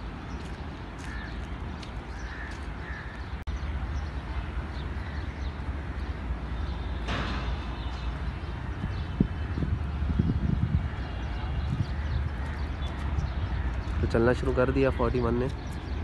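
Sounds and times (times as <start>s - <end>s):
crows cawing: 1.0s - 1.4s, 2.1s - 3.3s, 11.8s - 14.0s.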